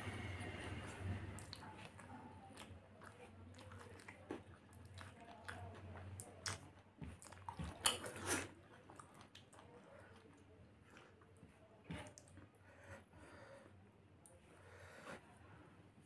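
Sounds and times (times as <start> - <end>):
person chewing food: 1.1 - 13.5.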